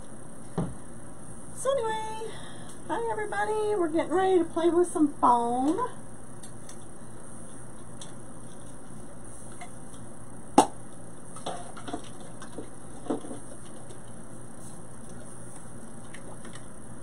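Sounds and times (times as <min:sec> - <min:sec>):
objects knocking and tapping: 0:11.4 - 0:14.0.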